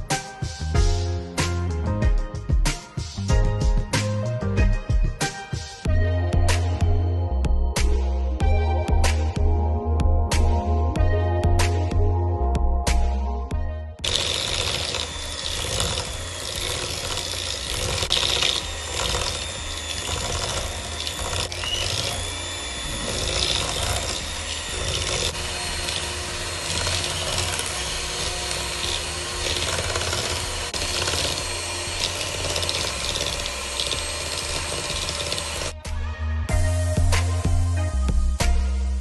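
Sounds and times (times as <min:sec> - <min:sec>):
electric hand mixer running: 0:14.0 - 0:35.8.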